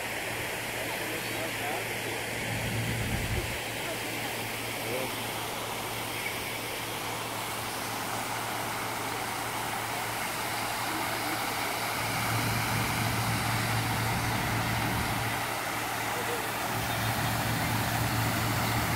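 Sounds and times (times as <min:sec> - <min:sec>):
fountain water splashing: 0:00.0 - 0:18.9
low hum: 0:02.2 - 0:03.6.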